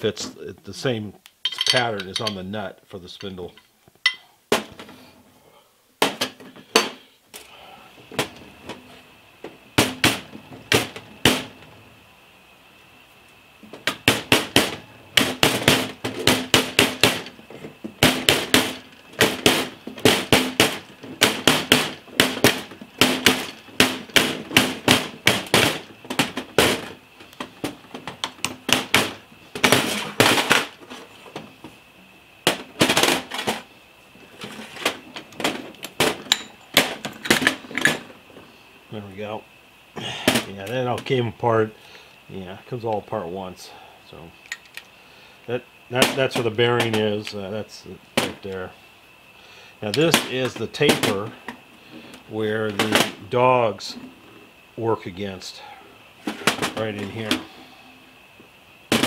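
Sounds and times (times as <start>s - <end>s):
hammer tapping on ringing steel: 4.1s - 4.3s.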